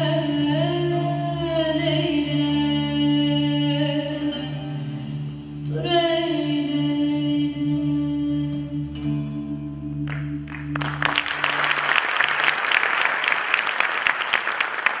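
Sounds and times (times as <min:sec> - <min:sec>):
audience applauding: 0:10.1 - 0:15.0.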